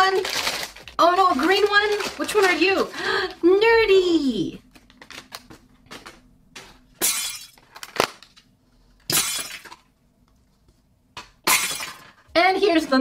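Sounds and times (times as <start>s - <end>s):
plastic packaging crinkling and tearing: 0.0s - 3.4s, 4.6s - 6.3s, 7.6s - 8.5s.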